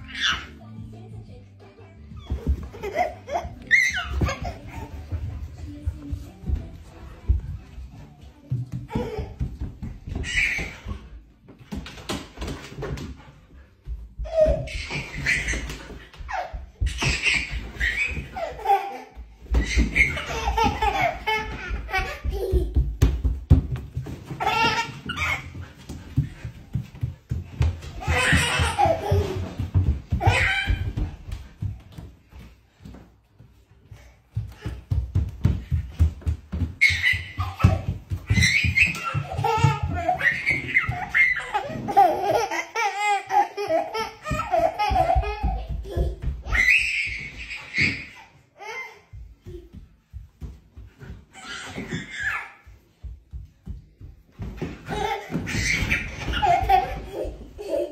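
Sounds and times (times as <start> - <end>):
footsteps on wooden floor: 0.7 - 57.9
toddler laughing and squealing: 2.2 - 5.0, 10.1 - 11.0, 14.3 - 22.8, 24.3 - 25.6, 28.0 - 31.1, 36.8 - 49.0, 51.4 - 52.6, 54.9 - 57.9.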